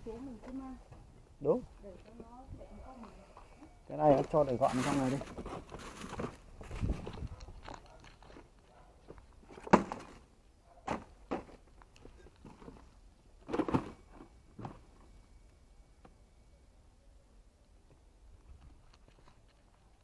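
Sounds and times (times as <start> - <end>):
paper and plastic bags rustling: 4.1 - 8.6.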